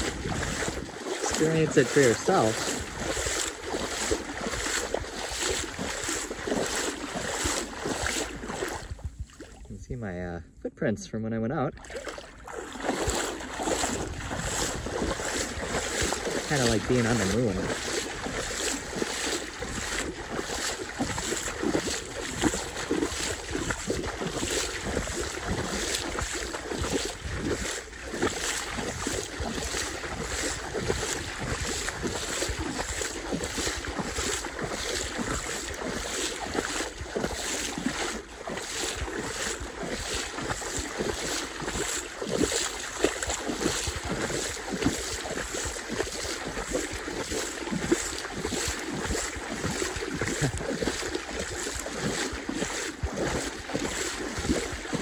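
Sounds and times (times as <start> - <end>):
wind buffeting microphone: 0.0 - 9.9, 12.5 - 37.6
small waves lapping: 0.0 - 10.0, 11.7 - 55.0.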